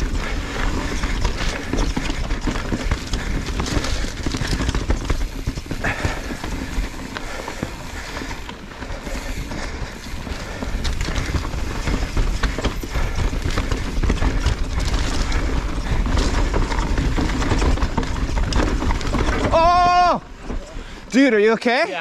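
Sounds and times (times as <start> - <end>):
tyres crunching on dirt: 0.0 - 20.7
bike rattling and clattering: 0.0 - 22.0.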